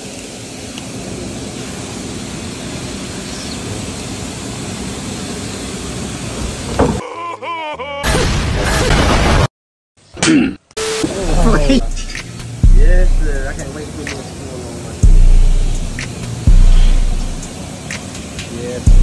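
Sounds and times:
background hiss: 0:00.0 - 0:07.0, 0:10.8 - 0:19.0
warbling voice-like cry: 0:07.0 - 0:08.9
loud crashing blast: 0:08.1 - 0:09.5.

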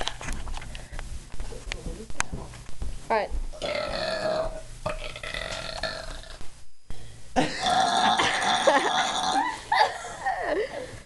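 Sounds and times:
boy belching: 0:03.6 - 0:06.4, 0:07.4 - 0:09.6.

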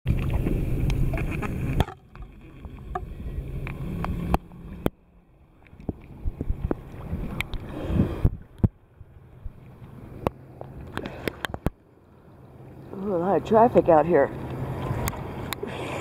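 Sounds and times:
loud low wash: 0:00.1 - 0:16.0
water sloshing and lapping: 0:00.1 - 0:16.0
splashy ticks: 0:05.6 - 0:07.7, 0:14.3 - 0:15.7.

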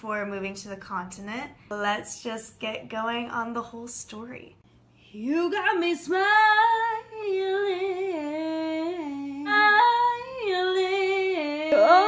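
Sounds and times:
woman singing unaccompanied: 0:05.1 - 0:12.0.

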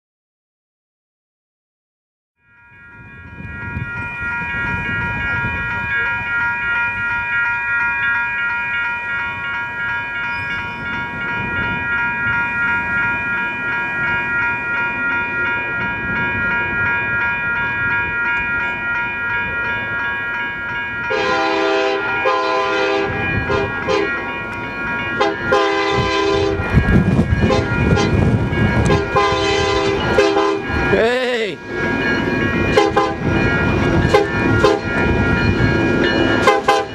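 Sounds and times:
railroad crossing bell ringing: 0:02.4 - 0:36.9
locomotive air horn chord: 0:21.1 - 0:24.2, 0:25.2 - 0:26.7, 0:27.4 - 0:28.2, 0:28.8 - 0:30.7, 0:32.7 - 0:33.3, 0:34.1 - 0:34.9, 0:36.4 - 0:36.9.

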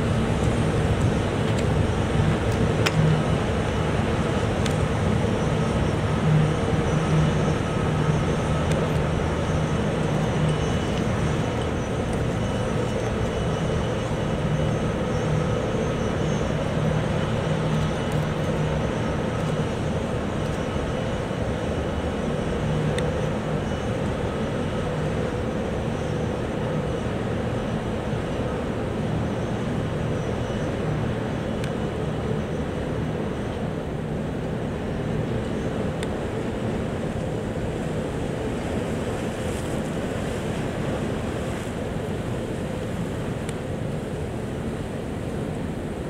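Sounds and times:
ship machinery drone: 0:00.0 - 0:46.0.

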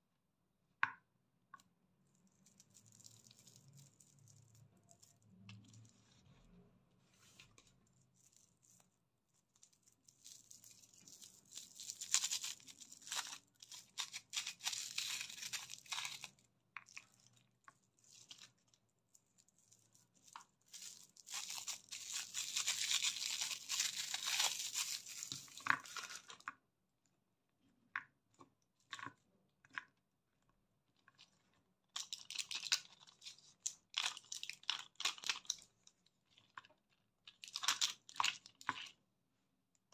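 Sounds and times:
plastic wrappers crinkling: 0:02.2 - 0:06.0, 0:07.4 - 0:26.5, 0:32.0 - 0:35.7
plastic blister strip crinkling: 0:08.2 - 0:26.4.

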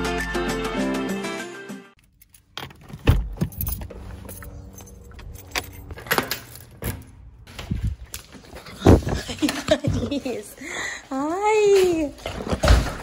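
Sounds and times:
keys jangling: 0:02.0 - 0:07.2.

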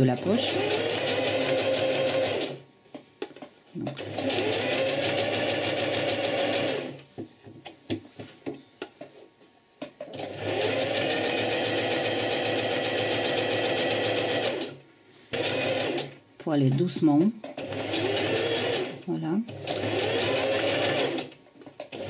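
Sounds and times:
sewing machine stitching: 0:00.0 - 0:02.6, 0:03.9 - 0:07.0, 0:10.1 - 0:16.1, 0:17.6 - 0:21.3.

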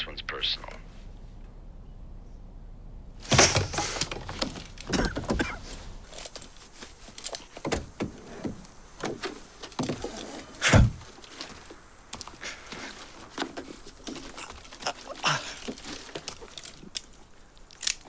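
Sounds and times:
heavy thunk: 0:03.2 - 0:05.6, 0:10.6 - 0:11.1
leather holster rustling and clicking: 0:05.6 - 0:07.6
car door thunks: 0:10.6 - 0:11.0.

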